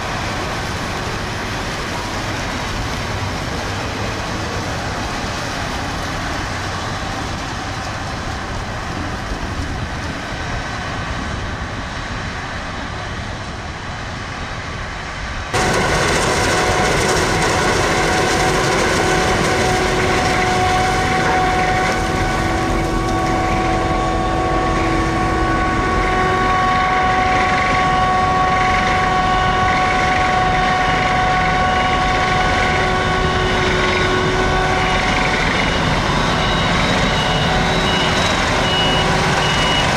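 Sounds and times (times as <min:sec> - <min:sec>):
forage harvester mechanical drone: 0:00.0 - 0:39.9
high whining tones: 0:15.6 - 0:39.9.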